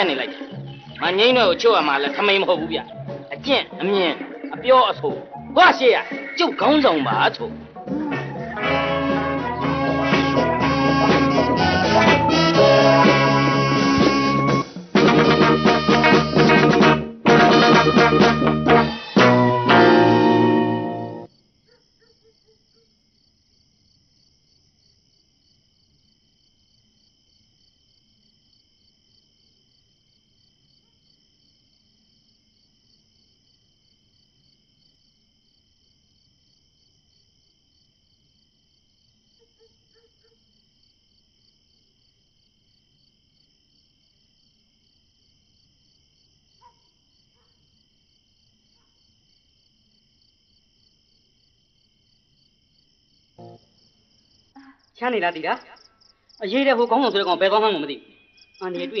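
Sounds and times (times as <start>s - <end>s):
crickets chirring: 0.0s - 7.6s, 21.3s - 59.0s.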